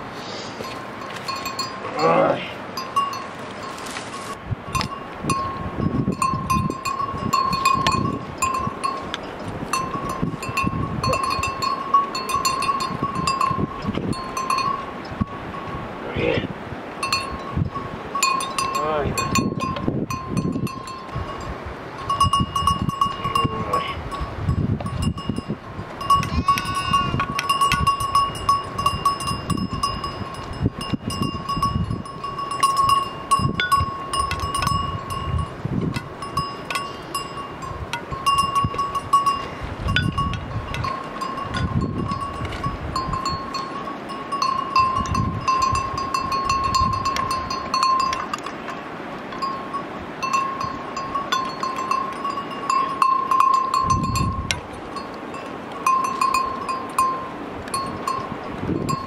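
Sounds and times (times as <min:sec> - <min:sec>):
metal bell clinking: 0:00.6 - 0:03.8, 0:04.7 - 0:15.4, 0:17.0 - 0:59.0.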